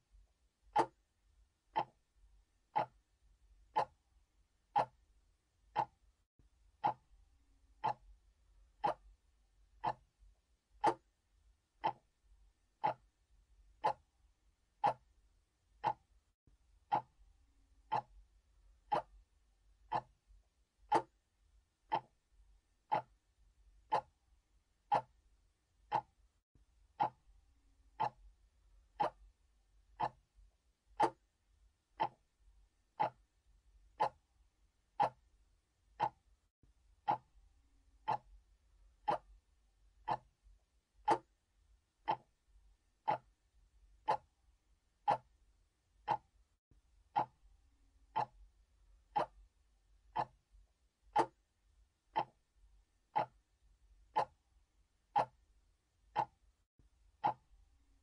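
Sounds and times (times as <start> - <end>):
clock ticking: 0.7 - 1.0, 1.7 - 2.1, 2.7 - 4.0, 4.6 - 6.1, 6.8 - 7.1, 7.7 - 9.2, 9.8 - 10.1, 10.7 - 11.2, 11.8 - 12.2, 12.8 - 14.1, 14.7 - 16.2, 16.8 - 17.2, 17.8 - 18.2, 18.8 - 19.3, 19.9 - 20.2, 20.8 - 21.2, 21.9 - 22.2, 22.8 - 23.2, 23.8 - 24.2, 24.8 - 25.2, 25.8 - 26.2, 26.9 - 27.3, 27.9 - 28.3, 28.9 - 29.4, 30.0 - 30.3, 30.9 - 31.3, 31.9 - 32.3, 32.9 - 33.3, 33.9 - 34.3, 34.9 - 35.3, 35.9 - 36.3, 37.0 - 37.4, 38.0 - 38.4, 39.0 - 39.4, 40.0 - 40.4, 41.0 - 41.4, 42.0 - 42.4, 43.0 - 43.4, 44.0 - 44.4, 45.0 - 45.4, 46.0 - 46.4, 47.1 - 47.4, 48.1 - 48.5, 49.1 - 49.5, 50.1 - 50.4, 51.1 - 51.4, 52.1 - 52.5, 53.1 - 53.5, 54.1 - 54.4, 55.1 - 55.5, 56.1 - 56.5, 57.2 - 57.6.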